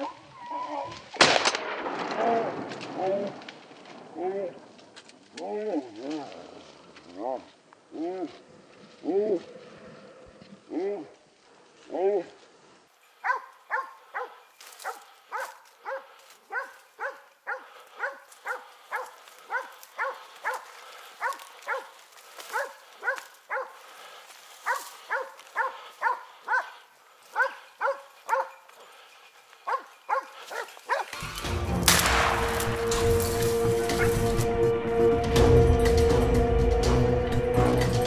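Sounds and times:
dog barking: 13.2 - 23.8, 24.6 - 28.6, 29.6 - 31.2
music: 31.2 - 38.0
shotgun blast: 31.8 - 33.2.

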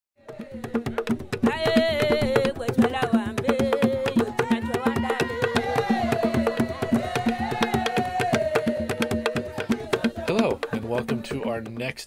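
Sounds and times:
theme music with fast percussion: 3.6 - 11.8.

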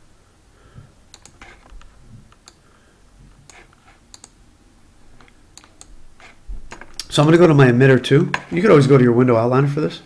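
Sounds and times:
computer mouse clicks: 1.1 - 2.6, 3.4 - 4.4, 5.2 - 7.1
keyboard clicks: 1.1 - 2.6, 3.4 - 4.4, 5.2 - 7.1.

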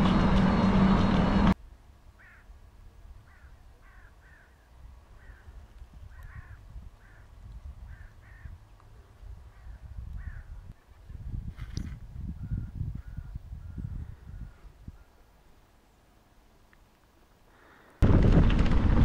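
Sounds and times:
loud riding noise: 0.0 - 1.6, 18.0 - 19.0
crow calling: 2.2 - 2.5, 3.2 - 8.6, 9.5 - 10.6
wind rumble on microphone: 4.7 - 15.1, 18.0 - 19.0.

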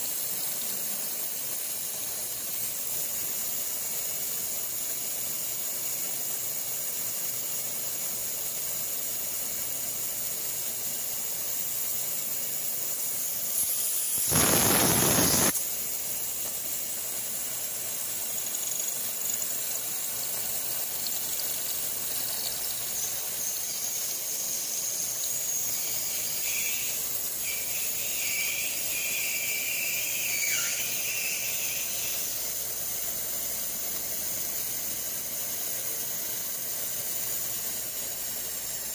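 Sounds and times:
steady high hiss: 0.0 - 38.9
high squeal: 13.6 - 15.6, 22.4 - 32.4
milling machine cutting: 14.0 - 15.5.

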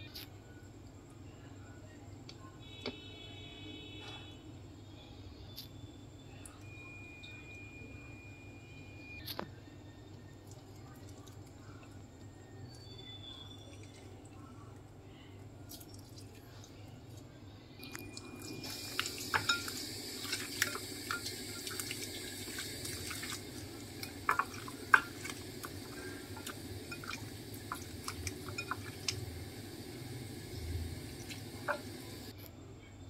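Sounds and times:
wet squelching of hand mixing meat: 20.0 - 29.4.

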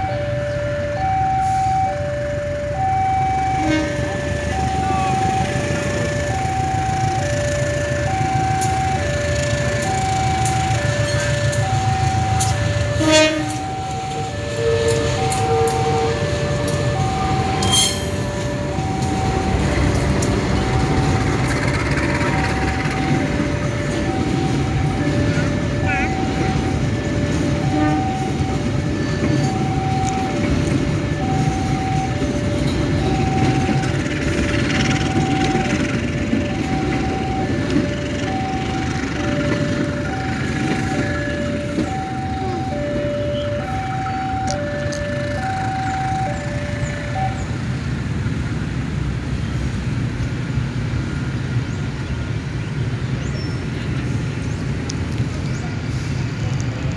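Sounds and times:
two-note warning signal: 0.0 - 21.4, 22.3 - 30.4
train wheels rumbling on track: 0.0 - 56.9.

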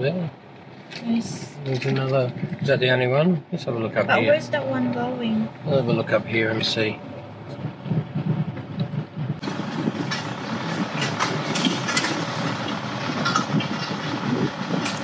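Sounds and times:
tyres and engine rumbling: 0.0 - 15.0
car knocks and rattles: 7.5 - 15.0.

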